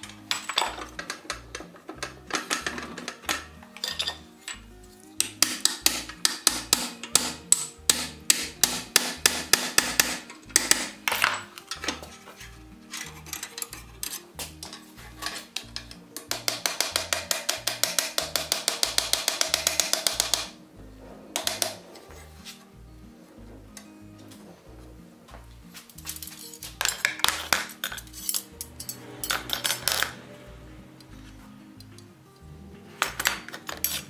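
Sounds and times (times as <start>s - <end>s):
background music: 0.0s - 34.0s
hammer striking hot iron: 5.2s - 11.9s, 14.4s - 20.6s.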